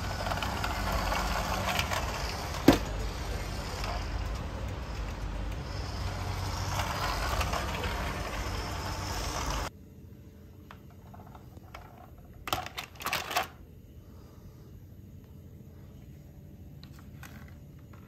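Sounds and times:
plastic toy vehicles clattering: 0:00.0 - 0:09.7, 0:10.8 - 0:13.6, 0:16.8 - 0:18.0
toy truck motor and wheels: 0:00.0 - 0:09.7.

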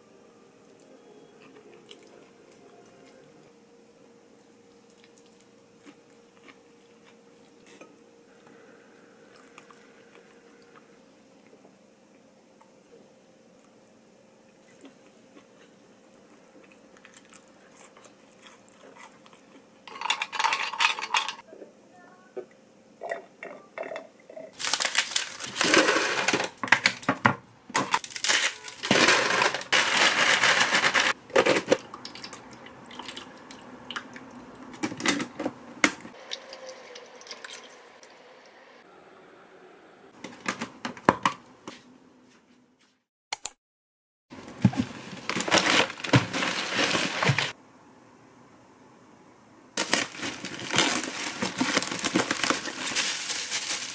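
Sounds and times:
ice cubes cracking from plastic tray: 0:24.6 - 0:27.1, 0:27.8 - 0:32.3, 0:49.8 - 0:53.9
ice cubes clattering into plastic bin: 0:24.6 - 0:31.8, 0:44.6 - 0:47.6, 0:49.8 - 0:53.9.

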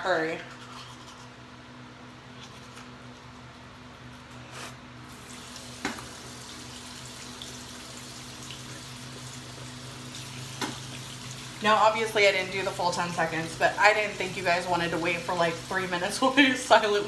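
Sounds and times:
toothbrush scrubbing: 0:00.3 - 0:01.4
sink tap running: 0:05.1 - 0:17.0.

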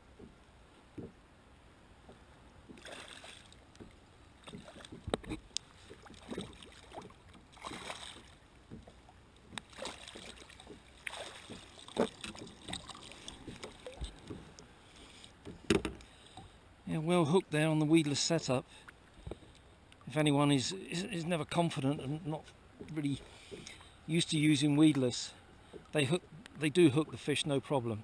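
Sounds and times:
water sloshing: 0:01.9 - 0:16.6
fish splashing at surface: 0:09.7 - 0:14.0.

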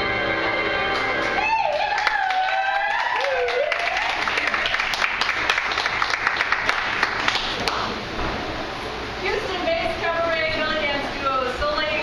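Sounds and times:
audience clapping: 0:00.9 - 0:08.0.

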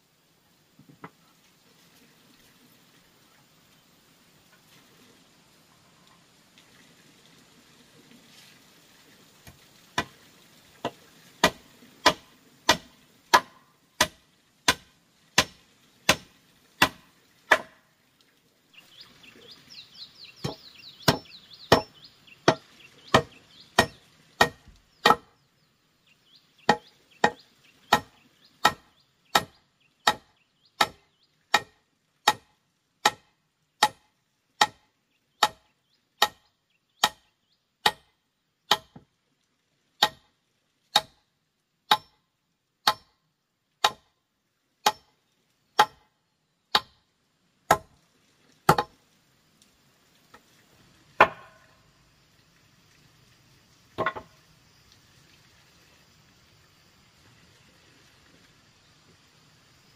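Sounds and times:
tool chopping wood: 0:10.8 - 0:17.8, 0:20.4 - 0:25.3, 0:26.7 - 0:34.8, 0:35.4 - 0:36.4, 0:37.0 - 0:37.2, 0:37.8 - 0:38.1, 0:38.7 - 0:39.1, 0:40.0 - 0:40.3, 0:40.9 - 0:41.2, 0:41.9 - 0:42.2, 0:42.8 - 0:43.2, 0:43.8 - 0:44.1, 0:44.8 - 0:45.1, 0:45.8 - 0:46.1, 0:46.7 - 0:47.0, 0:47.7 - 0:47.9, 0:48.7 - 0:48.9, 0:51.2 - 0:51.6, 0:54.0 - 0:54.3.

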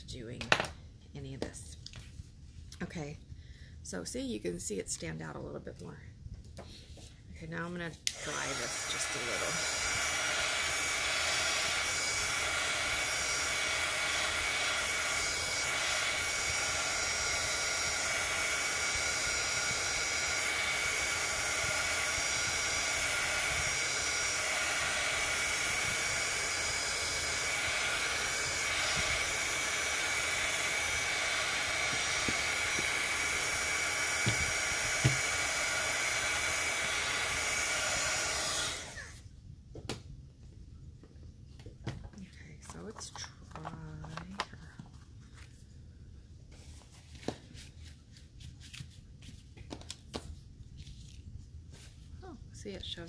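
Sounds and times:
heat gun blowing with fan whine: 0:07.5 - 0:39.3.

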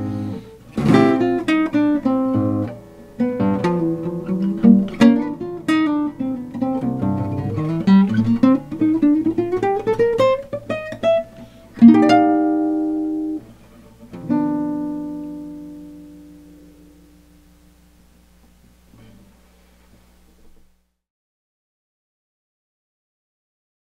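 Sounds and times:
solo acoustic guitar: 0:00.0 - 0:20.8.

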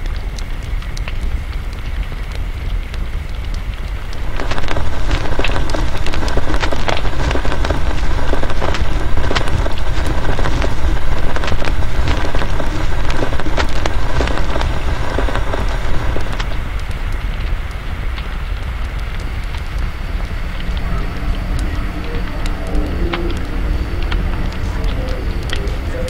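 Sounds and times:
crackling clicks: 0:00.0 - 0:26.0
steady low rumble: 0:00.0 - 0:26.0.

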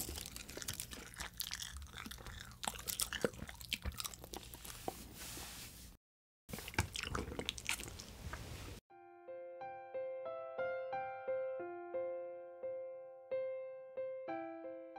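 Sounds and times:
starch film crinkling while eating: 0:00.0 - 0:04.8.

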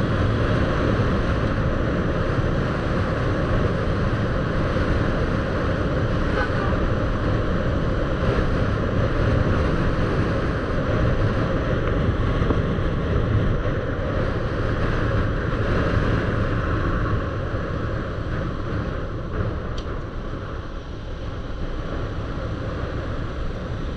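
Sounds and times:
moving vehicle low rumble: 0:00.0 - 0:23.9
wind rush on microphone: 0:00.0 - 0:23.9.

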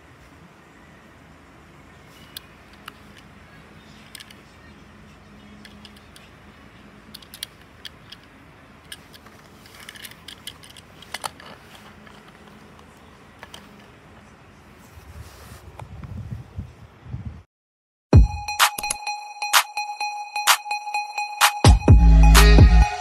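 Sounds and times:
toy car clicks and taps: 0:04.0 - 0:04.4, 0:05.6 - 0:06.3, 0:07.1 - 0:12.8.

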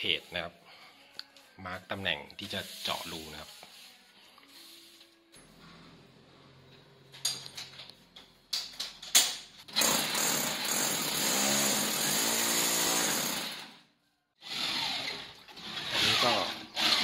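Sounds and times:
hammer drill boring into wall: 0:09.7 - 0:13.8, 0:14.4 - 0:17.0.

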